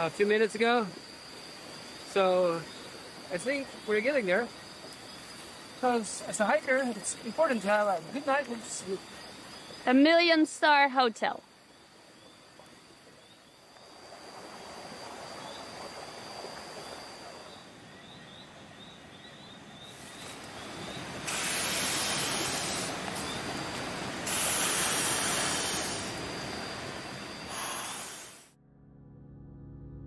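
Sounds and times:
insect drone: 0:00.0 - 0:28.6
river water rushing: 0:20.0 - 0:28.4.

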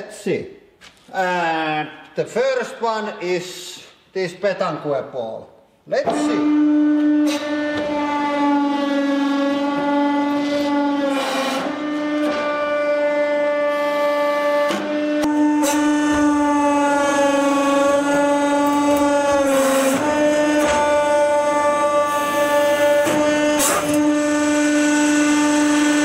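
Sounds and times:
hydraulic press whining: 0:06.0 - 0:26.0.

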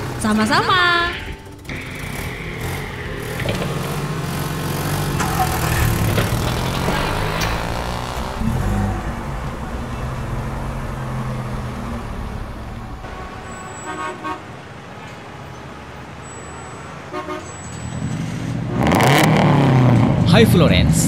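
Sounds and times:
vehicle engine running: 0:00.0 - 0:14.7
city traffic: 0:00.0 - 0:21.0
car horn toots: 0:04.9 - 0:15.2, 0:17.0 - 0:17.9.

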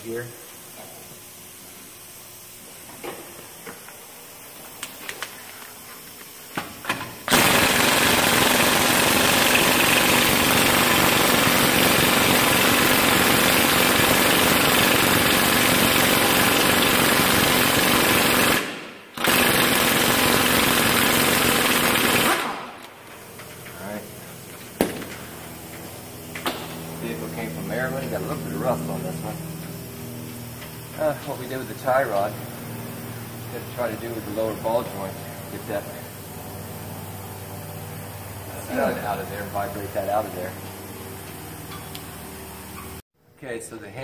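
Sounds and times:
pneumatic impact wrench hammering: 0:06.5 - 0:23.7, 0:24.5 - 0:26.8.

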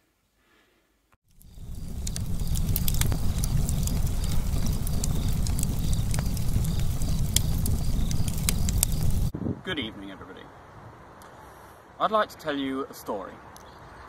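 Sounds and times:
wood fire crackling: 0:01.2 - 0:09.3.

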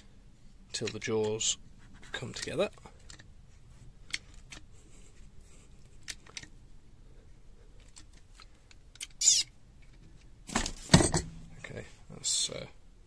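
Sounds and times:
high-pitched squeak: 0:09.2 - 0:09.5.

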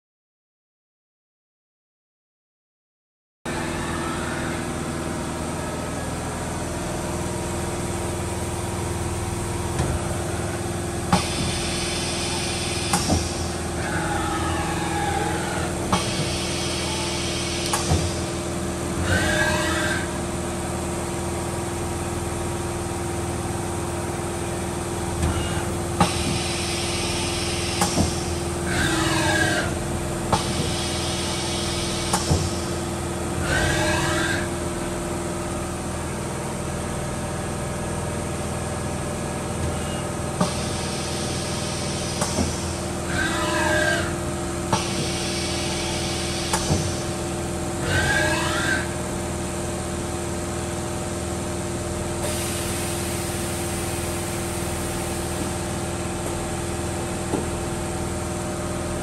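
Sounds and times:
servo whines gliding in pitch: 0:03.5 - 0:06.2, 0:11.3 - 0:18.2, 0:19.0 - 0:20.2, 0:25.2 - 0:32.6, 0:33.4 - 0:34.8, 0:42.6 - 0:47.0, 0:47.8 - 0:49.0
machine motors humming: 0:03.5 - 0:59.0.

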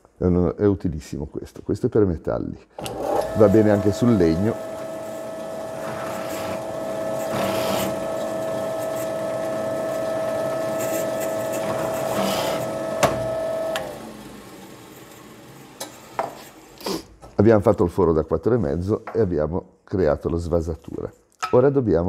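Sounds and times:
electric drill whining: 0:02.8 - 0:14.6.

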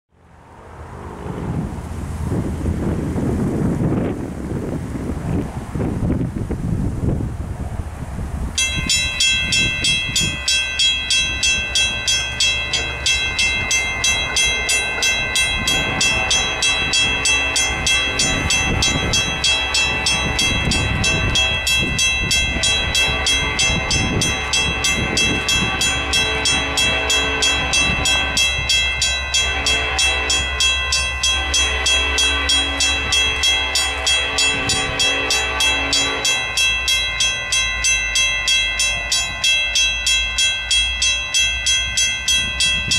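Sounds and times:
electronic crossing bell clanging: 0:08.6 - 0:42.9
mechanical crossing bell clanging: 0:08.6 - 0:42.9.

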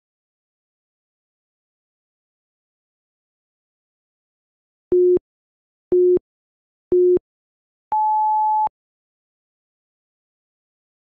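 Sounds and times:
timer countdown beeps: 0:04.9 - 0:05.2, 0:05.9 - 0:06.2, 0:06.9 - 0:07.2, 0:07.9 - 0:08.7.

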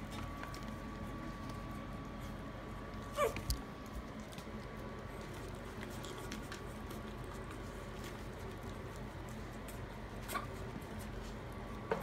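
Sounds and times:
puppies scuffling on blanket: 0:00.0 - 0:12.0.

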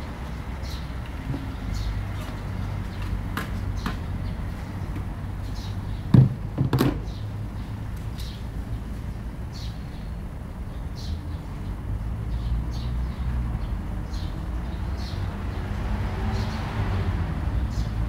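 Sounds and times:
distant traffic rumble: 0:00.0 - 0:18.0
pole knocking plastic bin: 0:06.1 - 0:07.0
bird chirping: 0:07.0 - 0:11.7.

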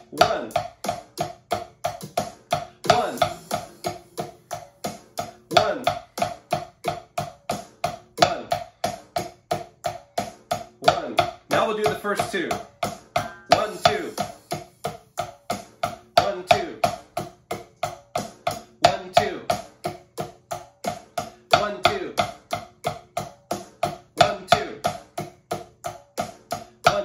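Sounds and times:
drumsticks striking practice pad: 0:00.2 - 0:17.6
funky backing music: 0:02.9 - 0:05.2.

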